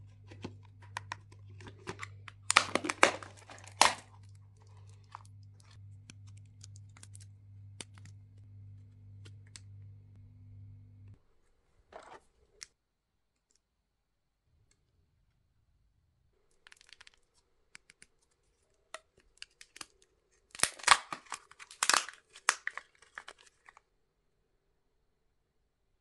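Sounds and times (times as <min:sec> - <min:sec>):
wrapper tearing and crinkling: 0:01.6 - 0:05.3, 0:20.5 - 0:23.8.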